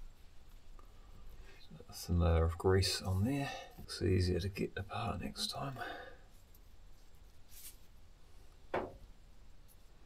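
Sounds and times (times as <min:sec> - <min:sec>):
faint scrape of metal parts: 0:06.3 - 0:08.0.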